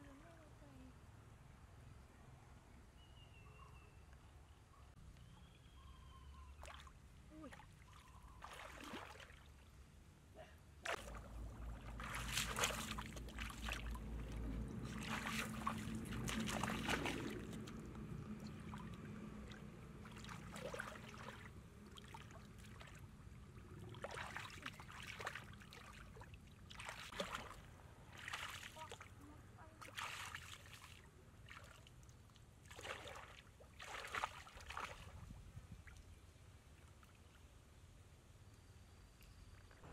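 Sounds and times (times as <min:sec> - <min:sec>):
muddy water splashing: 0:06.6 - 0:09.8, 0:10.8 - 0:36.2.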